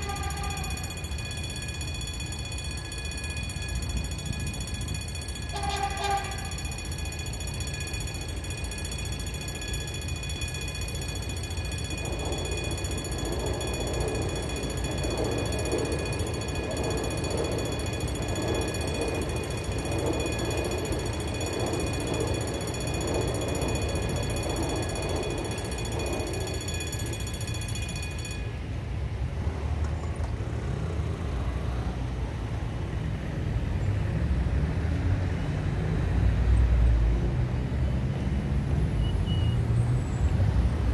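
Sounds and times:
train horn note: 0.0 - 0.9, 5.5 - 6.7
level crossing bells ringing: 0.0 - 29.2
train passing rumble: 0.0 - 40.9.

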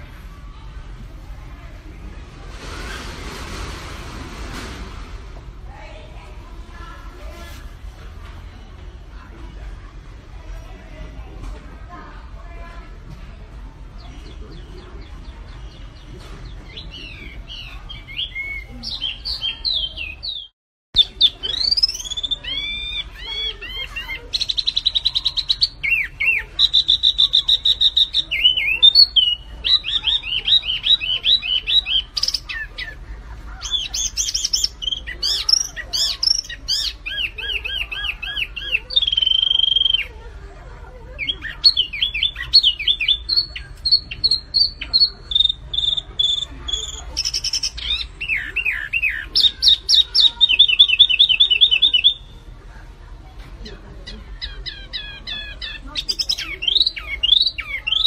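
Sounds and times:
songbird singing trills: 14.0 - 40.2, 41.1 - 52.5, 54.0 - 58.0.

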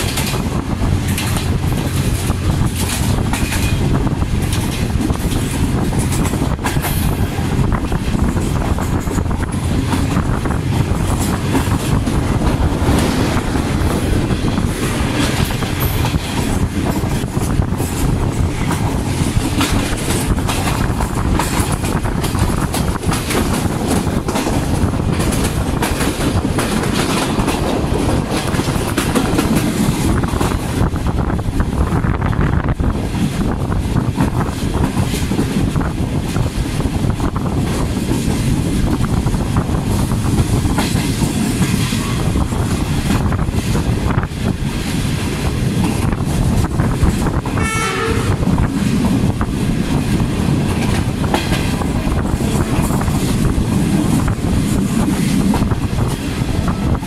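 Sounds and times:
wheels clattering over rail joints: 0.0 - 31.6, 32.6 - 57.0
diesel locomotive engine drone: 0.0 - 57.0.

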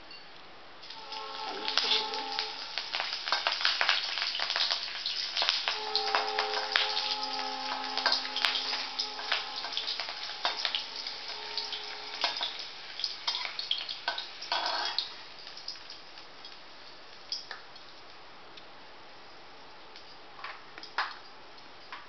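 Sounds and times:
chillies sizzling in hot oil: 0.8 - 18.2
steel spatula scraping a pan: 0.9 - 4.7, 5.4 - 15.1.

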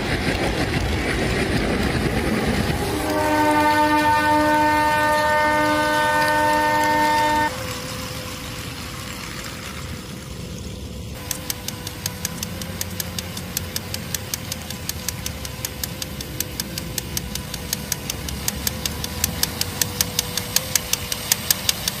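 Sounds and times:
low rolling rumble: 0.0 - 20.0
small motor whine: 3.0 - 22.0
sharp rhythmic clicks: 11.2 - 22.0.

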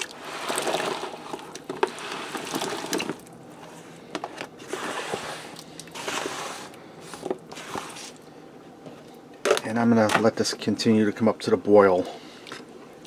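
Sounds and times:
potatoes sliding off plastic mat: 4.6 - 8.2.

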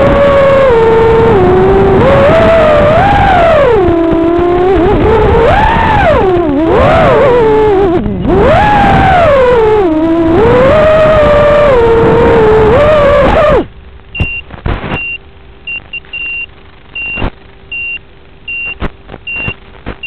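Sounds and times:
drone motors whining: 0.0 - 15.1
short high beeps: 14.2 - 19.6.

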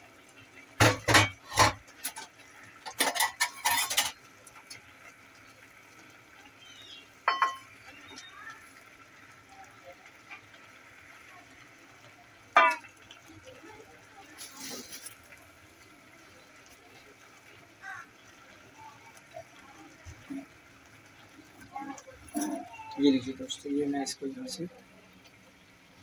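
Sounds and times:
utensils clinking against metal pot: 0.8 - 4.2, 7.2 - 7.7, 12.6 - 12.9, 22.2 - 22.8.

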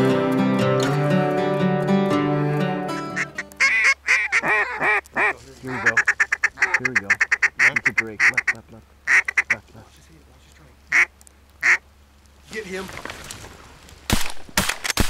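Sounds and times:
acoustic guitar music: 0.0 - 4.8
duck quacking: 3.0 - 9.7, 10.9 - 11.8.

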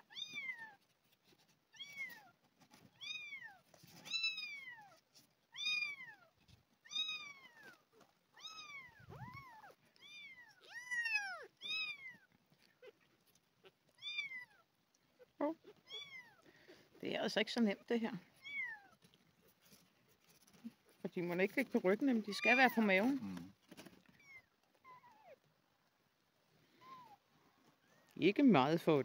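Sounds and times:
kittens mewing: 6.9 - 16.8.

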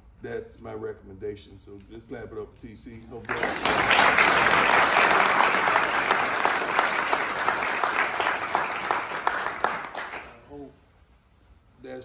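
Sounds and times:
crowd applauding: 3.2 - 10.4.

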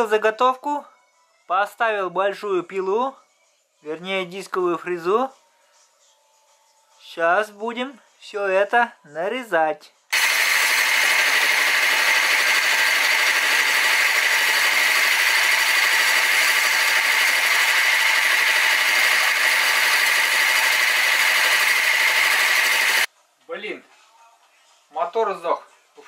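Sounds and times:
milling machine cutting metal: 10.2 - 23.1.

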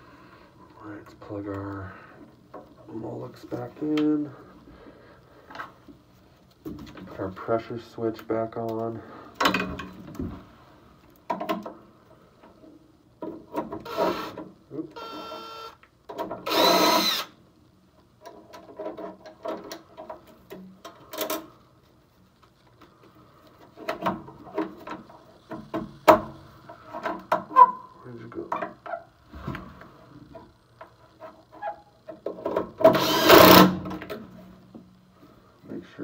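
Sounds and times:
cordless drill whining: 13.8 - 14.4, 15.0 - 15.8, 16.5 - 17.3, 32.9 - 33.7.

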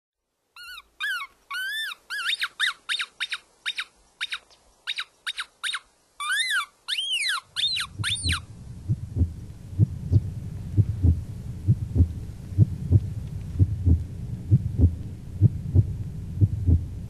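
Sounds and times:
coyote yips and howls: 0.6 - 8.4.

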